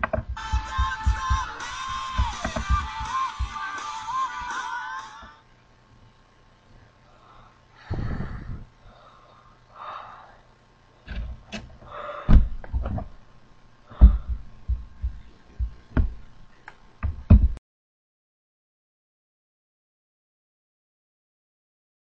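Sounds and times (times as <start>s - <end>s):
gas mask knocks and bumps: 0.0s - 3.6s, 12.3s - 13.1s, 14.0s - 16.2s, 17.0s - 17.6s
breathing through gas mask filter: 7.1s - 10.5s.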